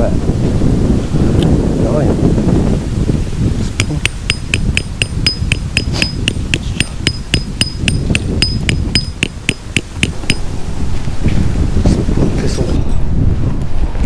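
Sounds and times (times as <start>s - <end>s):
wind rumble on microphone: 0.0s - 14.0s
hammer striking metal tent peg: 3.8s - 10.4s.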